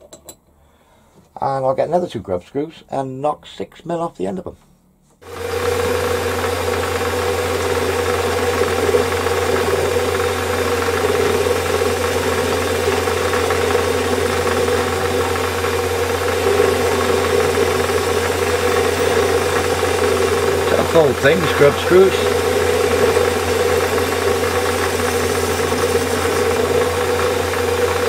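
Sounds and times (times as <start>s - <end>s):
metal lathe humming and whining: 5.3s - 28.0s.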